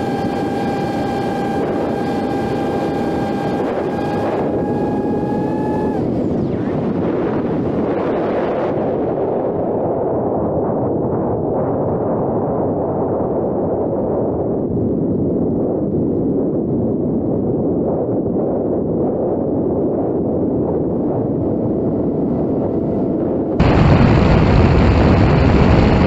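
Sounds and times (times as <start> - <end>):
propeller noise: 0.0 - 9.0
wind rushing: 0.0 - 10.4, 19.0 - 26.0.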